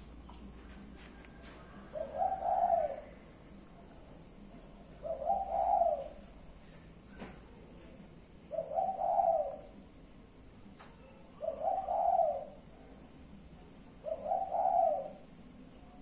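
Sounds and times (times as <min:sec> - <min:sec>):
dove cooing: 0:01.3 - 0:03.3, 0:04.8 - 0:06.6, 0:08.4 - 0:09.8, 0:11.4 - 0:12.7, 0:14.0 - 0:15.4.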